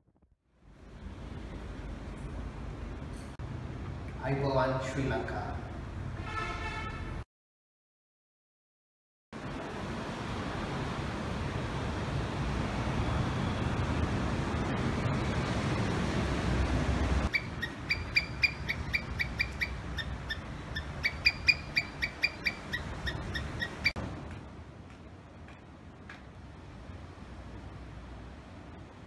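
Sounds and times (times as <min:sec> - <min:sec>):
wind: 0:00.0 - 0:07.2, 0:09.4 - 0:29.0
squirrel chirping: 0:17.3 - 0:24.0.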